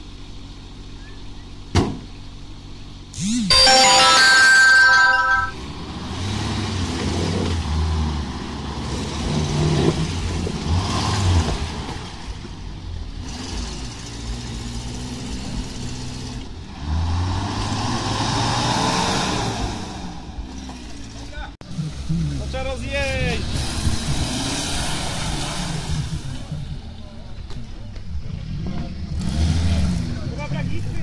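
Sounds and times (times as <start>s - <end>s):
loud steady tone: 3.5s - 5.6s
off-road engines revving: 5.6s - 31.0s.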